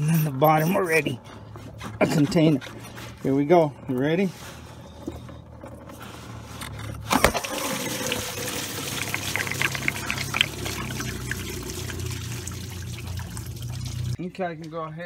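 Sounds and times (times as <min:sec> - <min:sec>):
liquid pouring into container: 0:07.2 - 0:14.2.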